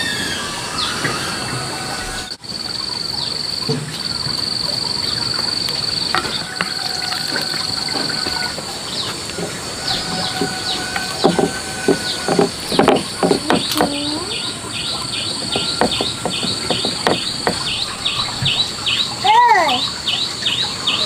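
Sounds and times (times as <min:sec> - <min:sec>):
insect trilling: 0:00.0 - 0:20.0
birds chirping: 0:00.0 - 0:21.0
sharp knocks: 0:09.3 - 0:18.6.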